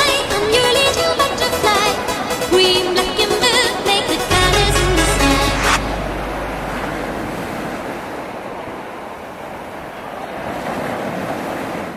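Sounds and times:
music low bass note: 4.3s - 8.7s
waves washing on beach: 9.5s - 11.9s.

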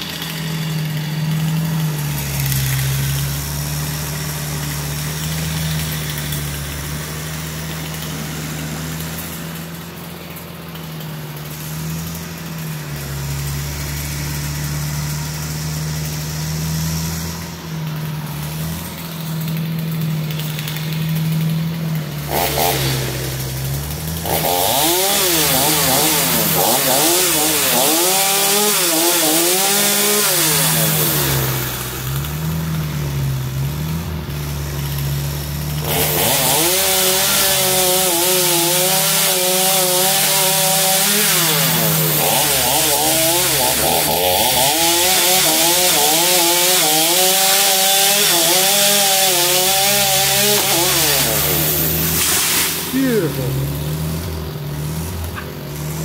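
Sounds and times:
chainsaw cutting wood: 0.0s - 56.0s
low engine drone: 51.2s - 56.0s.

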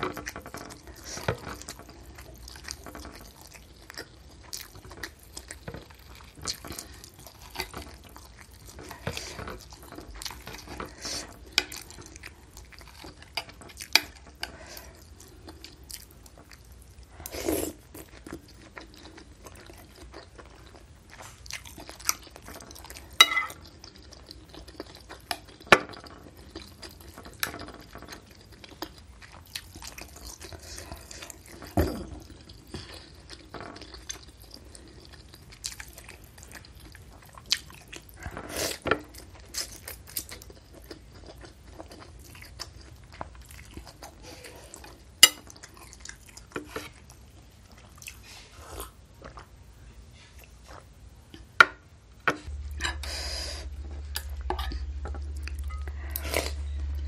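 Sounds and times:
slurping and chewing: 0.0s - 51.5s, 52.4s - 57.0s
metal spoon clinking on bowl: 23.2s - 23.6s
steady low hum: 49.7s - 57.0s.

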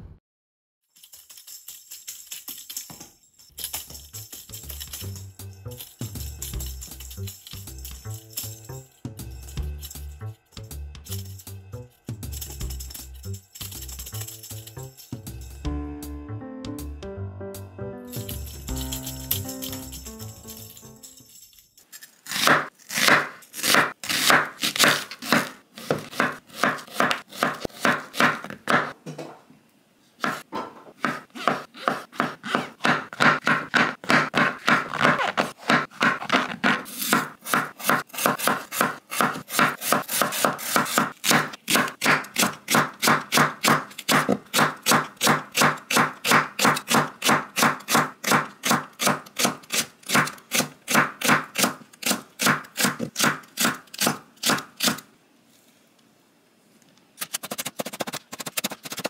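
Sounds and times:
knife chopping on cutting board: 22.3s - 29.0s, 30.2s - 55.0s.

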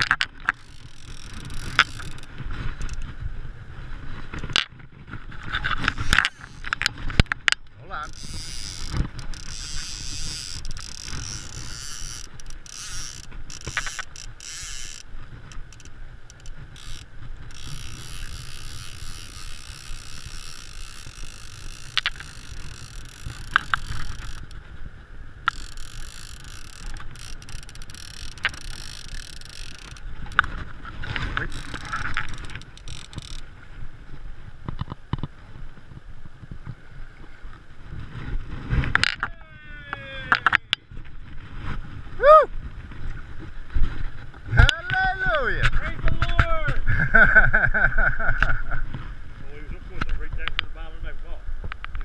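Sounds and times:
fly reel clicking: 0.0s - 3.1s, 5.8s - 6.9s, 7.5s - 24.6s, 25.5s - 30.6s, 31.4s - 33.5s
wind on microphone: 0.0s - 52.0s.

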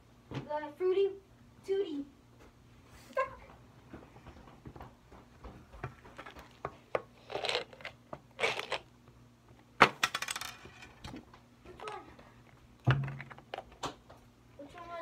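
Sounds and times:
jelly beans rattling in container: 7.2s - 8.8s.

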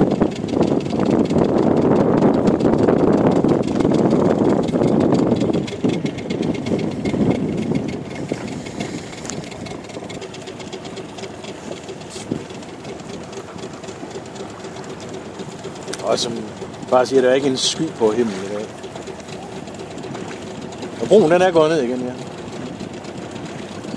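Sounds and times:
outboard motor running: 0.0s - 23.9s
water noise: 0.0s - 23.9s.

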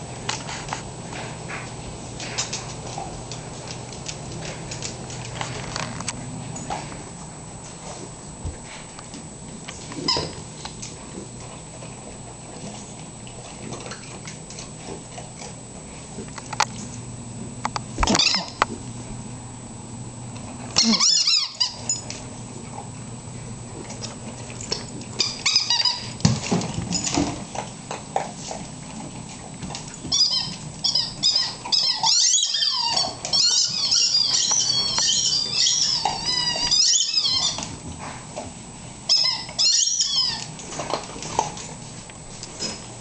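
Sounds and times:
dog squealing and whining: 18.1s - 18.6s, 20.8s - 22.0s, 25.2s - 26.2s, 30.0s - 37.8s, 39.1s - 40.6s.

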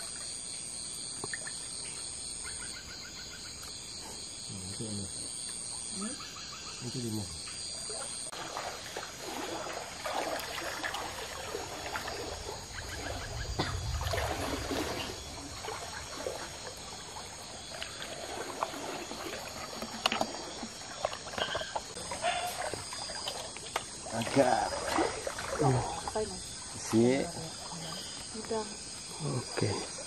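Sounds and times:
shallow river water trickling: 0.0s - 30.0s
small splashes: 7.8s - 30.0s.

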